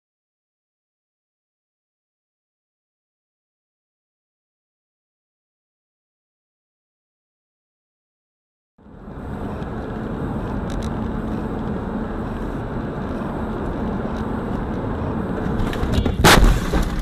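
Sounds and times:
car road and engine noise: 0:08.8 - 0:17.0
car crash bang: 0:15.6 - 0:17.0.

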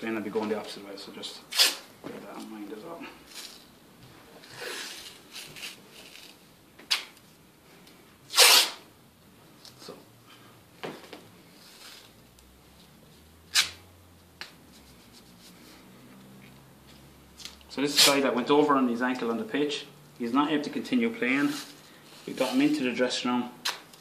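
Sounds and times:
tape ripping: 0:01.5 - 0:01.9, 0:04.4 - 0:07.2, 0:08.3 - 0:08.8, 0:13.5 - 0:13.8, 0:17.4 - 0:18.3.

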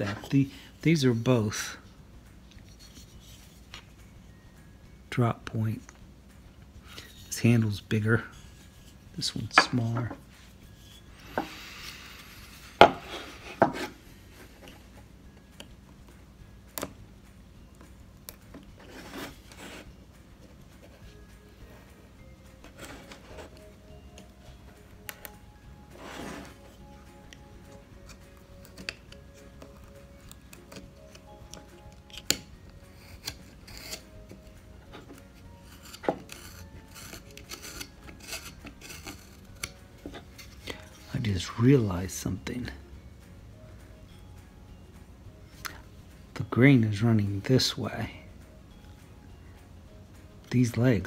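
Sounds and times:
knife scraping wood: 0:08.2 - 0:14.8, 0:18.8 - 0:19.9, 0:22.6 - 0:23.7, 0:25.9 - 0:26.8, 0:28.0 - 0:41.3
knife cutting wood chips: 0:30.5 - 0:34.4, 0:35.5 - 0:40.6.

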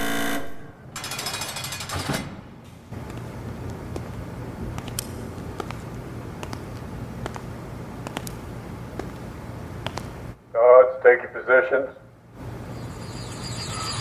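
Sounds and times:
loud buzzer tone: 0:00.0 - 0:00.8, 0:12.7 - 0:14.0
rattling machine buzz: 0:00.0 - 0:02.0, 0:12.4 - 0:14.0
steady low hum: 0:02.4 - 0:14.0.

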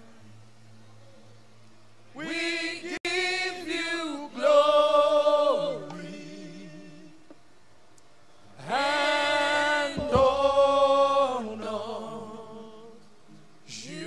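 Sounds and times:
people singing unaccompanied: 0:02.1 - 0:07.4, 0:08.6 - 0:14.0
low thump: 0:10.0 - 0:10.4.

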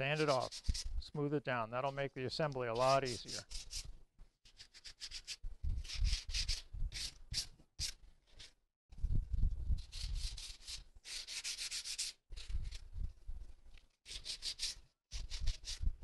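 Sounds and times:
sandpaper rubbing wood: 0:00.1 - 0:00.9, 0:02.7 - 0:03.9, 0:04.5 - 0:08.0, 0:09.8 - 0:12.8, 0:14.1 - 0:15.8.

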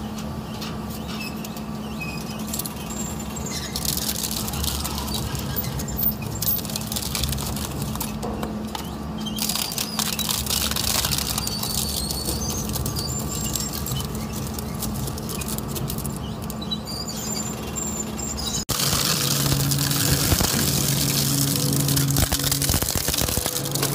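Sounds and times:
shredder humming: 0:18.7 - 0:23.9.

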